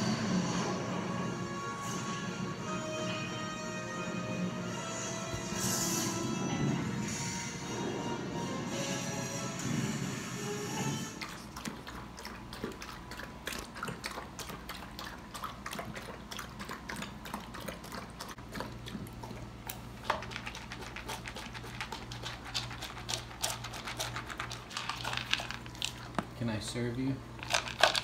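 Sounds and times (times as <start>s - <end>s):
dog crunching dry kibble: 11.2s - 26.6s, 27.3s - 28.0s.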